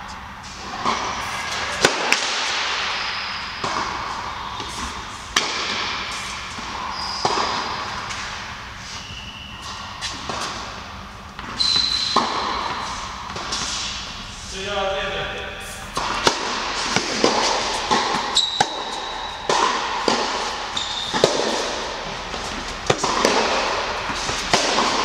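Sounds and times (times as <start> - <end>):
ball bouncing on court: 0.7 - 8.3, 11.4 - 14.2, 16.0 - 25.0
tennis ball hits: 0.8 - 8.4, 16.0 - 25.0
shoe squeaks: 2.9 - 5.1, 5.9 - 8.1, 8.8 - 10.5, 11.4 - 13.2, 16.1 - 25.0.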